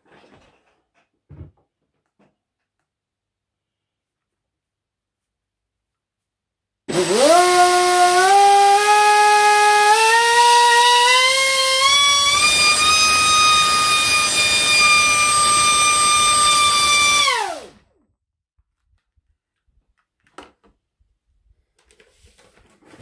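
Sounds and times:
electric motor propeller whine: 0:11.8 - 0:17.8.

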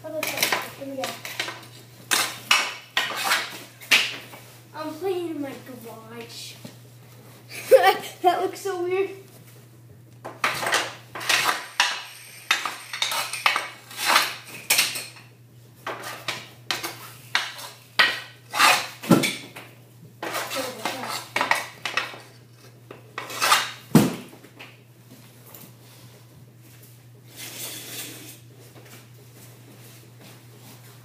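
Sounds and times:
hockey stick clacking on concrete: 0:00.2 - 0:04.2, 0:10.3 - 0:15.0.

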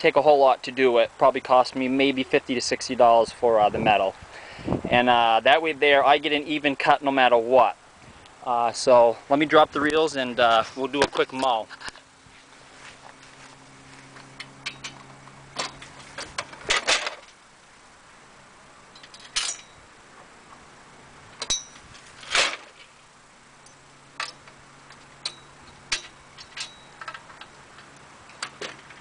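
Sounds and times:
metal clanks and rattles: 0:14.4 - 0:17.4, 0:18.9 - 0:19.8, 0:21.4 - 0:22.9, 0:23.6 - 0:29.0.

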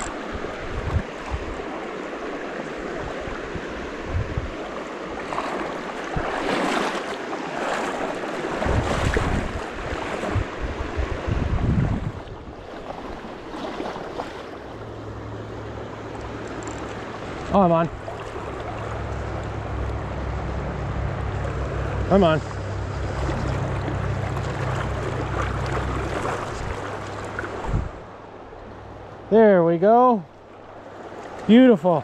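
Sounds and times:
wind buffeting on microphone: 0:00.0 - 0:01.7, 0:02.9 - 0:07.0, 0:08.4 - 0:14.4, 0:21.2 - 0:28.2
stream running over rocks: 0:00.0 - 0:10.6, 0:12.4 - 0:20.3, 0:21.2 - 0:29.0.

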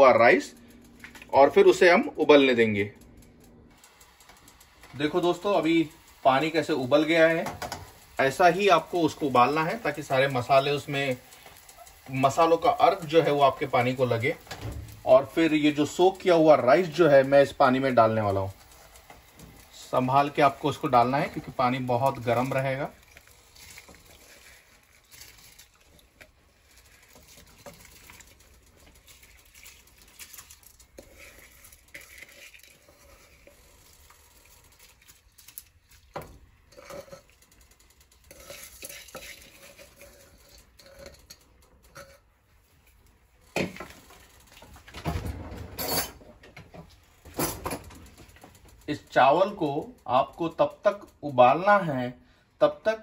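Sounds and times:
utensils scraping a pot: 0:08.6 - 0:42.3.

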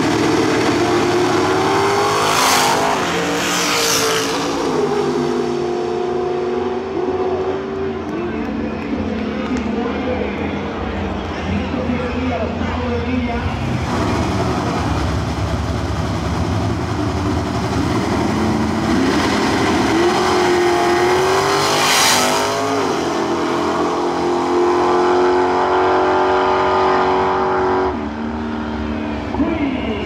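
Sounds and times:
drag race car engine revving: 0:00.0 - 0:11.4, 0:13.4 - 0:30.0.

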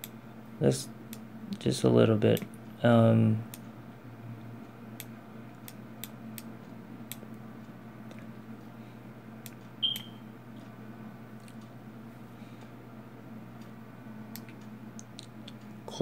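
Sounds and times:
low room hum: 0:00.0 - 0:16.0
short high-pitched beep: 0:09.8 - 0:10.2.

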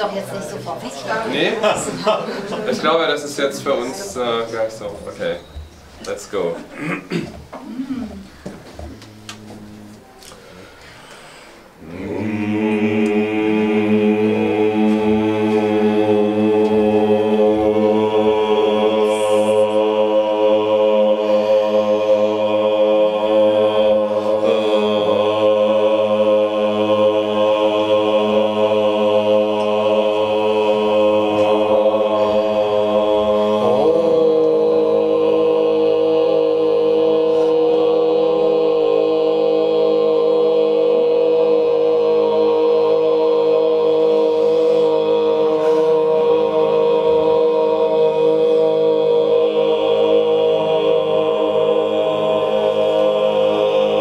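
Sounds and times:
group chanting drone: 0:00.0 - 0:05.1, 0:07.9 - 0:54.0.

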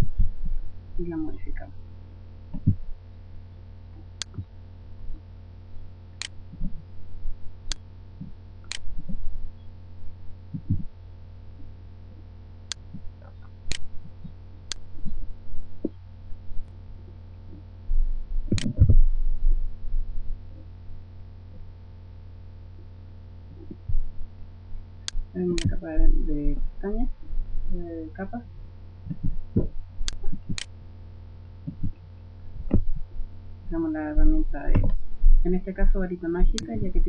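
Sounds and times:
low electrical hum: 0:00.0 - 0:37.0
soft low thumps: 0:00.0 - 0:37.0
computer mouse clicking: 0:18.6 - 0:18.8.

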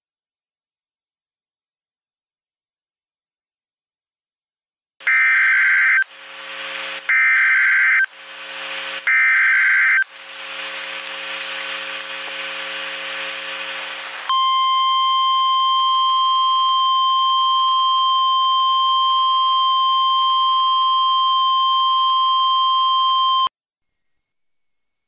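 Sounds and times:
emergency alert tone: 0:05.0 - 0:06.1, 0:07.1 - 0:08.1, 0:09.0 - 0:10.1, 0:14.3 - 0:23.5
harsh buzz: 0:05.0 - 0:16.9.

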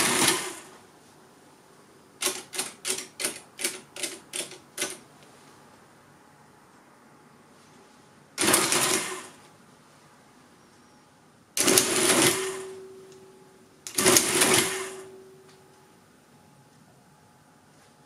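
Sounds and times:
calculator mechanism clattering: 0:02.2 - 0:05.0, 0:08.4 - 0:09.2, 0:11.6 - 0:12.6, 0:13.9 - 0:15.0.

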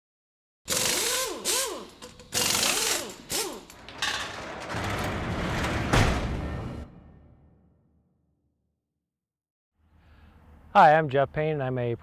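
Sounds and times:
roller shutter door rolling open: 0:03.2 - 0:07.4.

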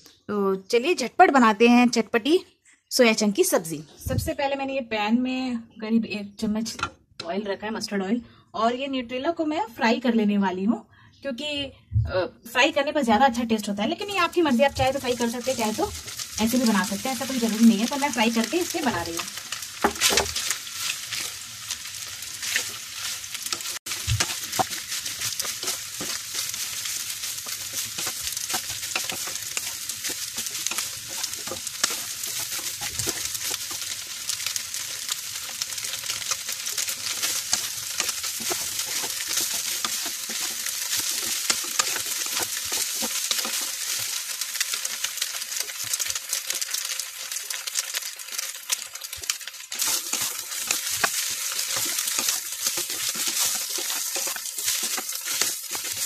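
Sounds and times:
food sizzling in oil: 0:12.5 - 0:56.0
spatula stirring in pan: 0:14.1 - 0:56.0.

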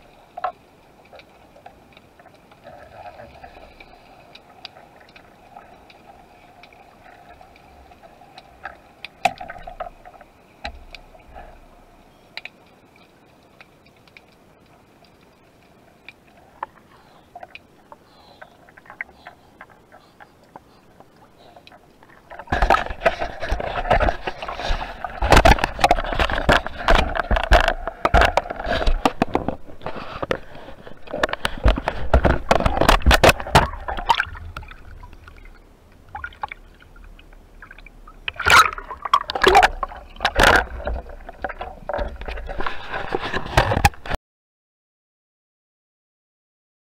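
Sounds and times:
crackling: 0:00.0 - 0:44.2
water sloshing and gurgling: 0:00.0 - 0:44.2
sharp clicks and knocks: 0:31.0 - 0:34.7.

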